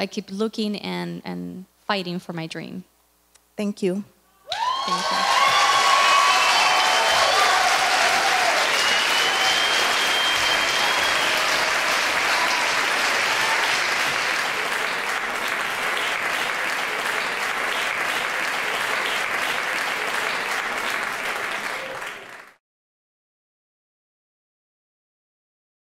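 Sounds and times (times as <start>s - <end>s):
audience clapping: 4.5s - 22.6s.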